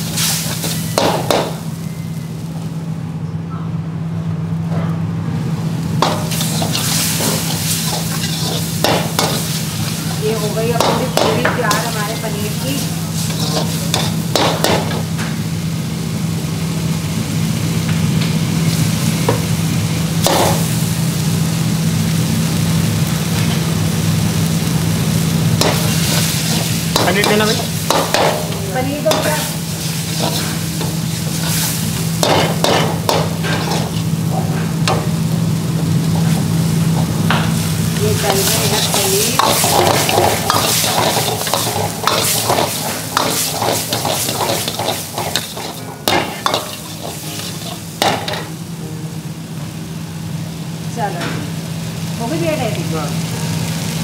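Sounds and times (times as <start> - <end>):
gravy sizzling: 0.0 - 3.0, 5.4 - 54.0
steady low hum: 0.0 - 52.2
ladle scraping a wok: 6.2 - 10.2, 12.8 - 14.2, 29.2 - 34.7, 38.2 - 48.5.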